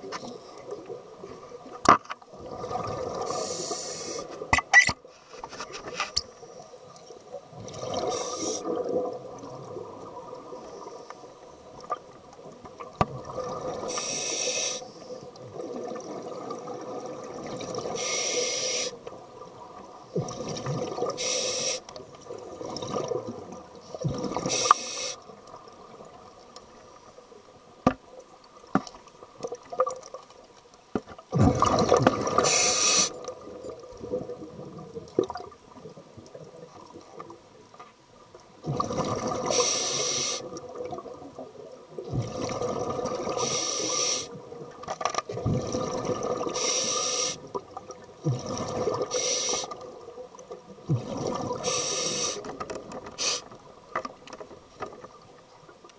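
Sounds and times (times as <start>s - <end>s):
exhaled bubbles: 2.3s - 3.6s, 7.5s - 10.7s, 12.0s - 14.0s, 15.3s - 18.0s, 19.6s - 21.2s, 22.3s - 24.6s, 31.3s - 37.2s, 38.6s - 39.6s, 40.4s - 44.7s, 45.3s - 46.7s, 47.4s - 53.0s
regulator hissing inhalations: 3.3s - 4.4s, 8.0s - 8.7s, 13.9s - 14.9s, 18.0s - 19.0s, 21.2s - 21.9s, 24.5s - 25.2s, 32.4s - 33.2s, 39.5s - 40.5s, 43.4s - 44.4s, 46.6s - 47.5s, 49.1s - 49.8s, 51.6s - 52.5s, 53.2s - 53.5s.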